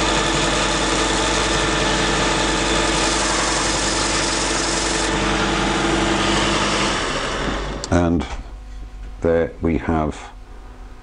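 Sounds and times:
belt sharpener motor running: 0:00.0 - 0:07.9.

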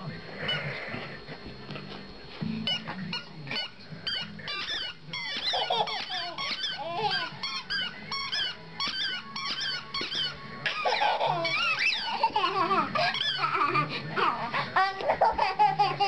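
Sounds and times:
squeaky dog toy squeaks: 0:02.7 - 0:12.4, 0:13.0 - 0:13.5
dog chewing toy: 0:02.7 - 0:13.4.

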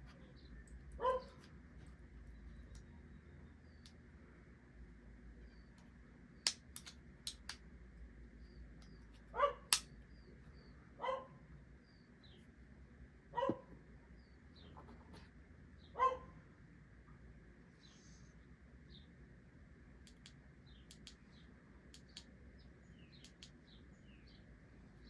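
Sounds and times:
dog barking: 0:01.0 - 0:01.4, 0:09.3 - 0:09.7, 0:11.0 - 0:11.4, 0:13.3 - 0:13.8, 0:16.0 - 0:16.4
plastic accessories clicking: 0:06.5 - 0:07.6.

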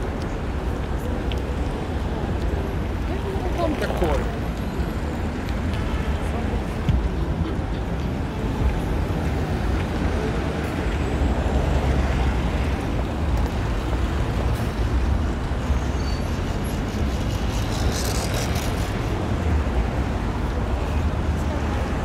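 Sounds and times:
city traffic rumble: 0:00.0 - 0:22.0.

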